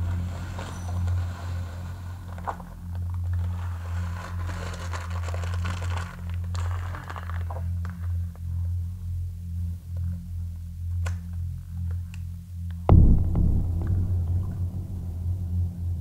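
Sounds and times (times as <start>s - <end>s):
gritty salt scraping and crackling: 0.0s - 8.3s
steady low hum: 8.0s - 16.0s.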